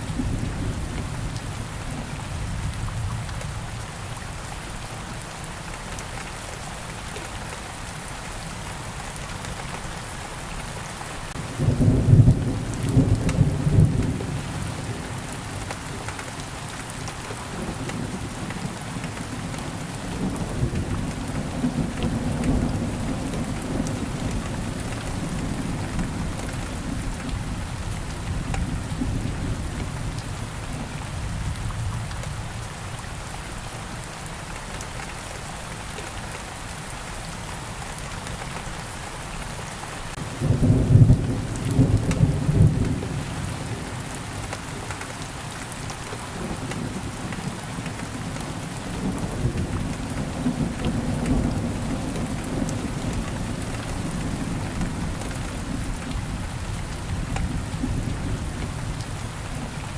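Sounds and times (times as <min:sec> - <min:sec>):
steady rain falling: 0:00.0 - 0:59.9
thunder clap and rumble: 0:48.9 - 0:59.0.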